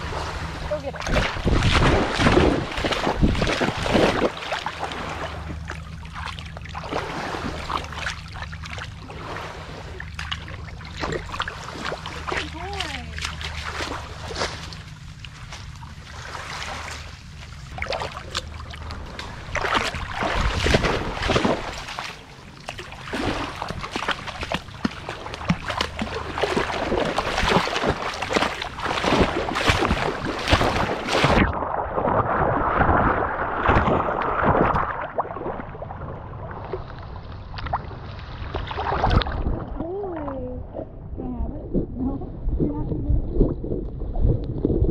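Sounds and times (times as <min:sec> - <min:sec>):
dog splashing through water: 0:01.0 - 0:09.5, 0:10.1 - 0:17.1, 0:17.7 - 0:35.6.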